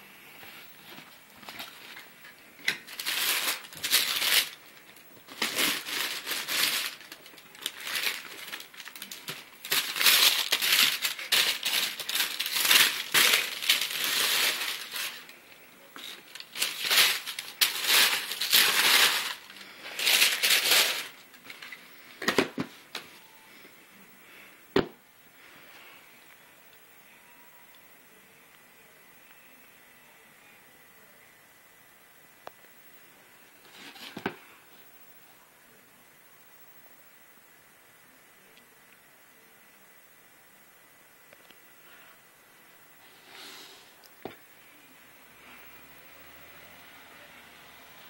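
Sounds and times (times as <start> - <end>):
paper crinkling and rustling: 0.4 - 23.2, 33.6 - 34.4.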